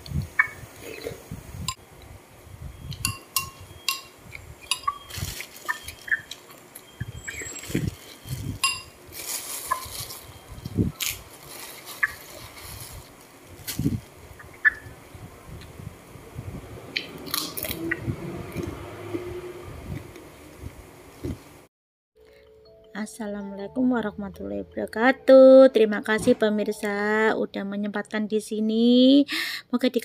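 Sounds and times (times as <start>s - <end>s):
spoon clinking against bowl: 3.0s - 4.1s, 8.6s - 8.9s
plastic crinkling: 5.0s - 6.8s, 7.4s - 14.1s.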